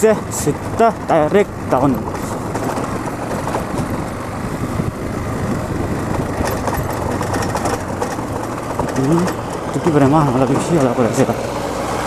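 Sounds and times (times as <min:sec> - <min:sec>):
motorcycle engine and tyre rumble: 0:00.0 - 0:12.0
small clicks and rattles: 0:00.3 - 0:04.3, 0:06.0 - 0:11.1.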